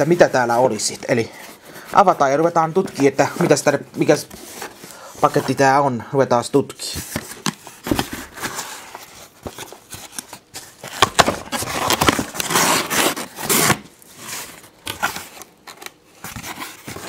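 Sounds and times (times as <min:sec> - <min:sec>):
cardboard box being opened: 0:07.0 - 0:17.0.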